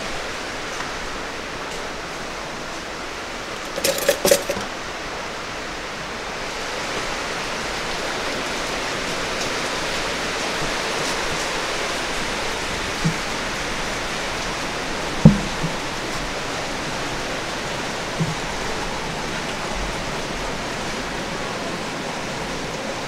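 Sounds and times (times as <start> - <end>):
dishes clattering: 3.6 - 4.8.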